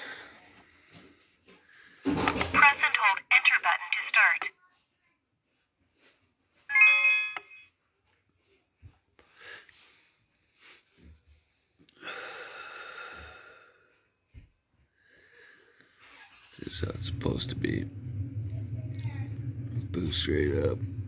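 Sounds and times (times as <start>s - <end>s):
charger beep chime: 6.7s - 7.7s.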